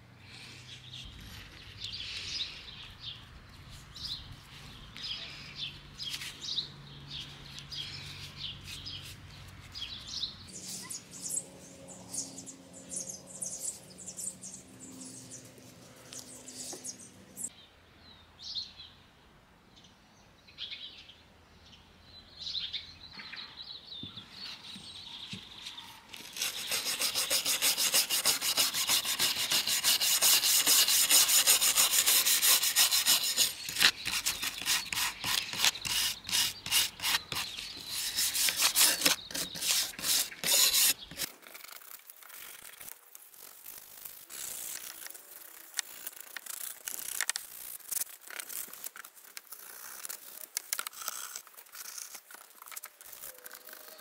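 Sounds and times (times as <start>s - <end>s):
wire brush scrubbing metal: 26.2s - 41.3s.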